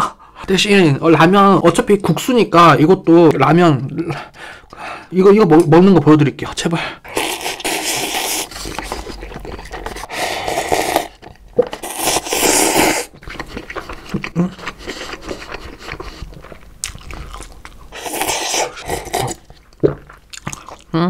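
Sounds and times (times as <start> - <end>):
noodles slurped: 7.1 - 20.9
chewing mouth sounds: 7.1 - 21.0.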